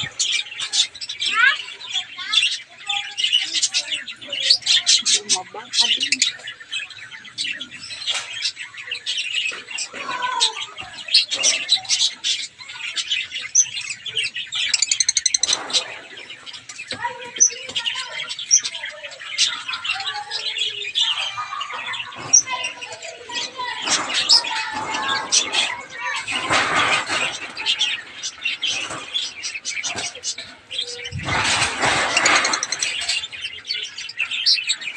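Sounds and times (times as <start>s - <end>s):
finches chirping: 0.0s - 34.9s
bird rattling trill: 14.6s - 18.7s, 23.4s - 33.5s.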